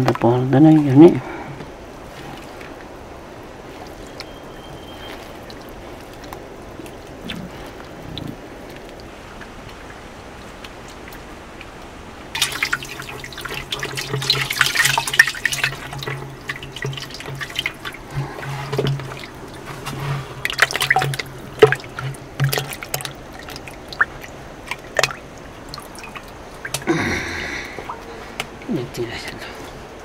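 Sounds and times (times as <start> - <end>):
wet splashes and drips: 1.8 - 29.0
hand sloshing in buttermilk: 3.4 - 8.1, 12.4 - 25.1.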